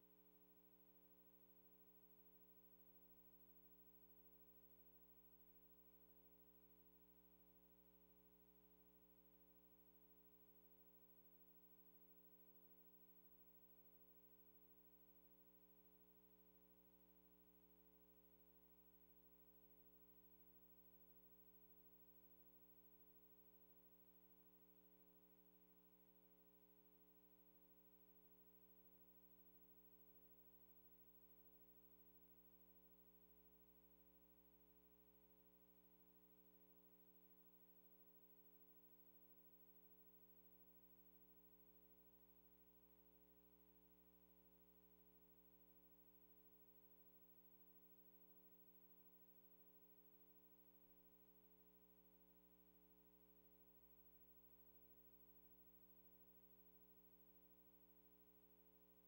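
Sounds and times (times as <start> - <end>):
faint steady hum: 0.0 - 59.0.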